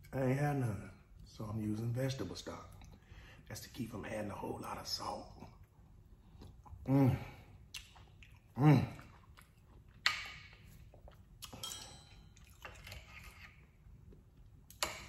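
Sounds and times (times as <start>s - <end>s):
breath: 3.0s - 3.4s
knife and fork on ceramic plate: 11.5s - 13.8s.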